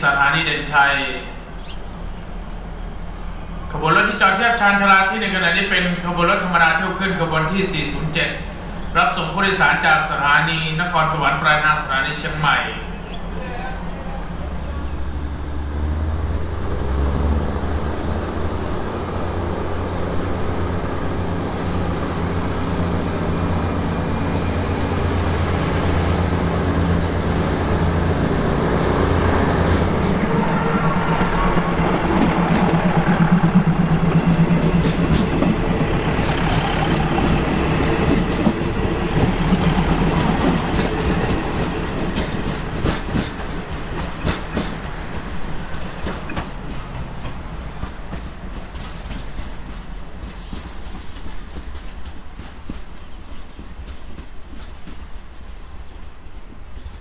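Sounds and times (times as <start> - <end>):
diesel railcars running: 0.0 - 57.0
wheels clicking over rail joints: 32.2 - 57.0.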